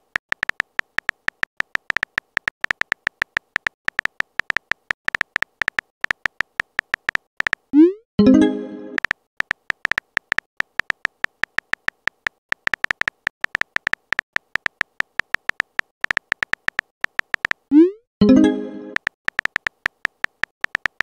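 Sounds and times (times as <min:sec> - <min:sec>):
synthetic keyboard tap clicks: 0:00.0 - 0:07.9, 0:09.0 - 0:17.9, 0:18.9 - 0:21.0
message chime: 0:08.2 - 0:09.0, 0:18.2 - 0:19.0.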